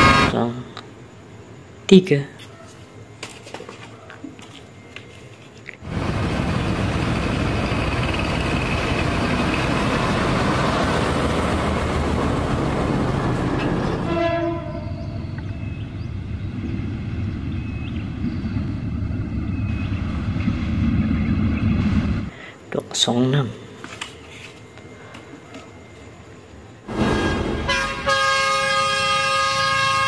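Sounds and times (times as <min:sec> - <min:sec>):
locomotive engine rumble: 0:05.8 - 0:22.4
diesel locomotive engine and rails: 0:05.8 - 0:23.4, 0:24.5 - 0:30.0
train horn blast: 0:14.0 - 0:15.2, 0:26.9 - 0:30.0.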